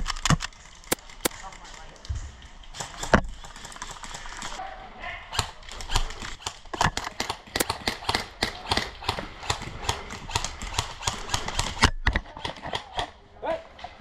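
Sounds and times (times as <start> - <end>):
airsoft guns firing: 5.3 - 13.2.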